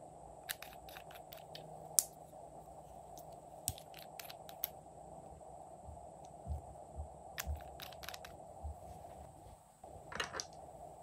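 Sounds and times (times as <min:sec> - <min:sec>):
faint background hum: 0:00.0 - 0:11.0.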